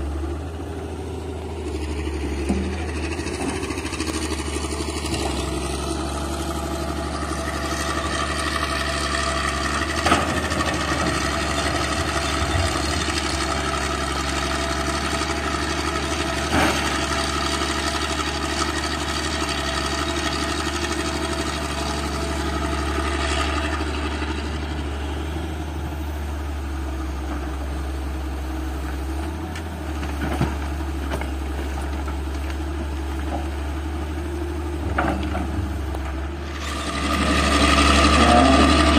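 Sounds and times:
excavator diesel engine running: 0.0 - 38.9.

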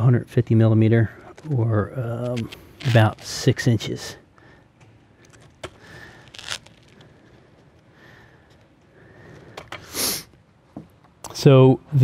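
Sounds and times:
faint handling sounds: 1.0 - 9.9.

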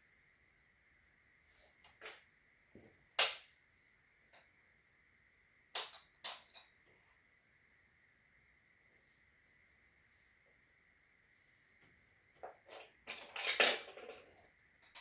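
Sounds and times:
wooden toy track pieces clicking: 12.6 - 15.0.

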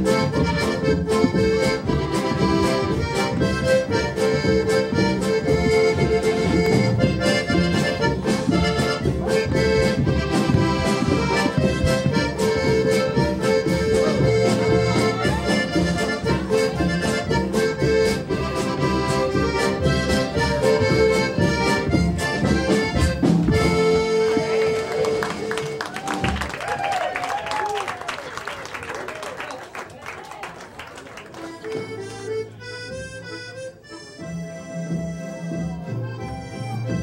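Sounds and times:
guitar and bass: 0.0 - 26.1, 31.7 - 37.0
accordion lead: 0.0 - 26.5, 30.6 - 37.0
steady drum beat: 0.0 - 26.6.

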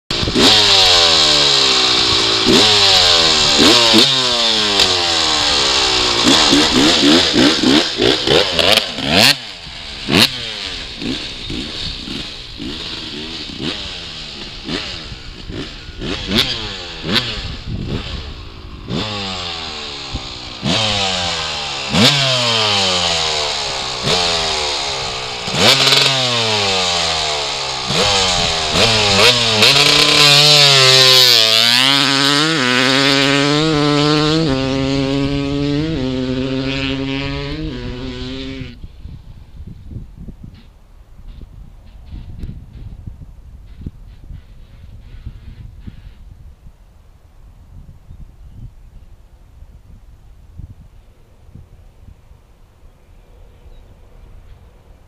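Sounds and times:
two-stroke engine revving: 0.1 - 38.8.

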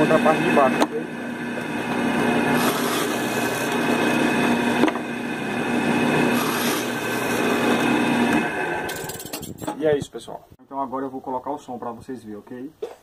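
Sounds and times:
drill bit boring through wood: 0.0 - 9.3
drill press motor running: 0.0 - 9.6.

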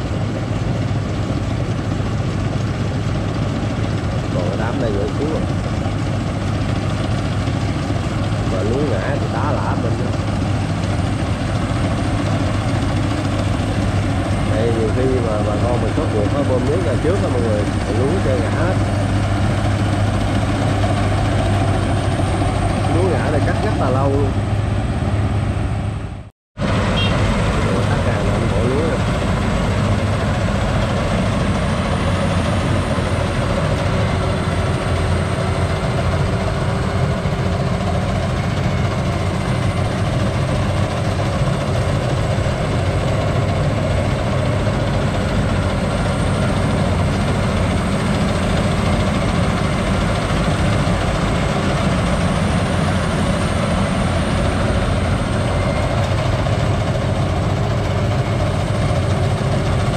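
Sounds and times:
combine harvester running: 0.0 - 59.9.

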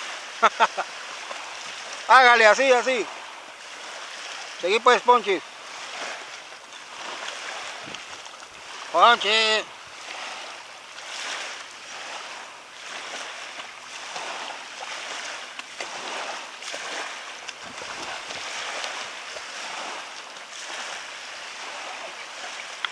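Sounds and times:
small waves washing: 0.0 - 22.9
children splashing in water: 5.6 - 22.9.

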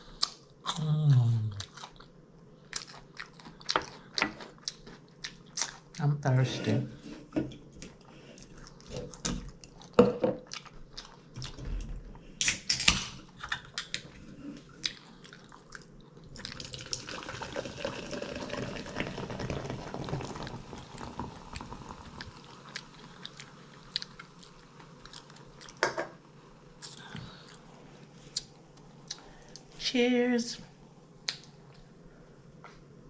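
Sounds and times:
eating sounds: 13.8 - 18.2, 20.3 - 25.8
drink pouring into glass: 16.6 - 22.6.

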